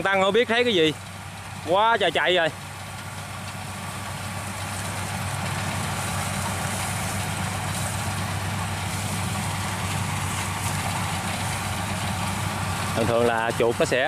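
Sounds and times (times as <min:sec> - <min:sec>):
combine harvester engine droning: 0:00.0 - 0:14.0.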